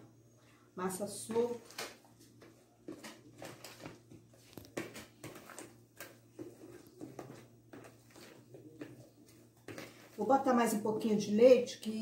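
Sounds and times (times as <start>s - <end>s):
batter stirred in glass bowl: 2.0s - 10.5s.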